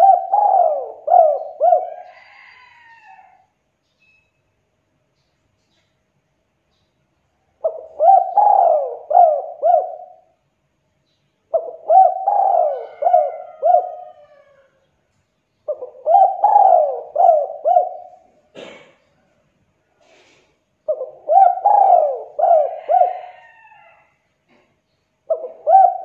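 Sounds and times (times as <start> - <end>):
dove cooing: 0.0 - 3.2, 7.6 - 10.4, 11.5 - 14.7, 15.7 - 18.8, 20.9 - 24.6, 25.2 - 26.0.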